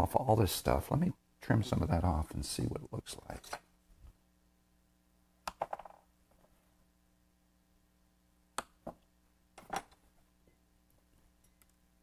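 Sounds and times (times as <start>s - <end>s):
quiet room hum: 0.0s - 12.0s.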